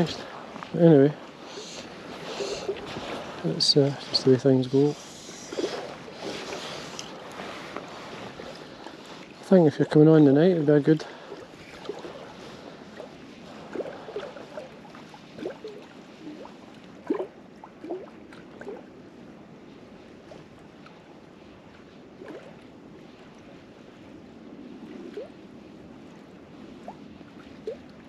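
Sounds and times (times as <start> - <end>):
background hiss: 0.0 - 7.8
small waves lapping: 0.0 - 28.0.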